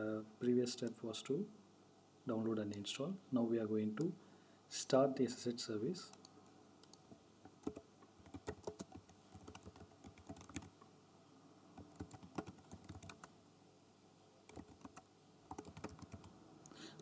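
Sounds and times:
computer keyboard clicks: 7.6 - 10.7, 11.8 - 13.3, 14.5 - 16.3.

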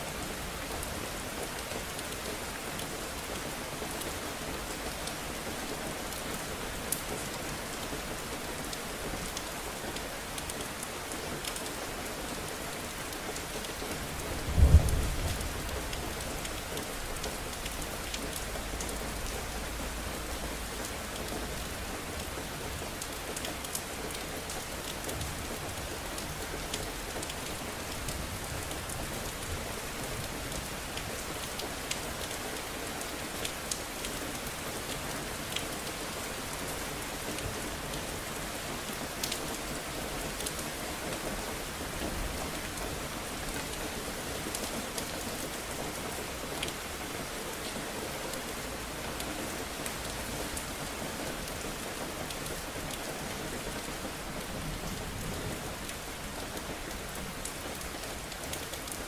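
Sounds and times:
rain on hard surfaces: 0.0 - 59.0
low rumble of thunder: 14.4 - 16.4.

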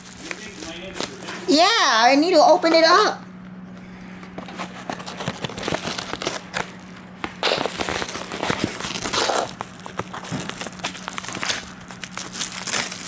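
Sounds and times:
envelope crinkling and tearing: 0.0 - 1.4, 4.6 - 13.0.

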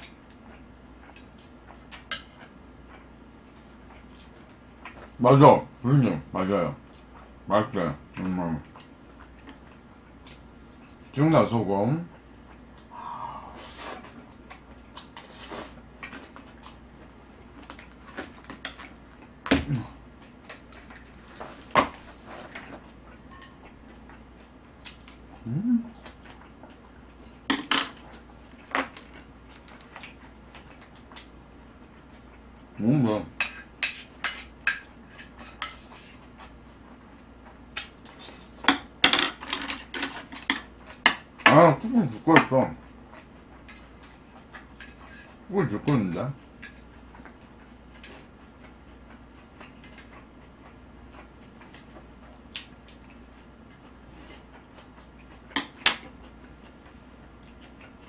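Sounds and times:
chopsticks and spoon clicking on plates: 1.0 - 3.1, 33.4 - 36.5.

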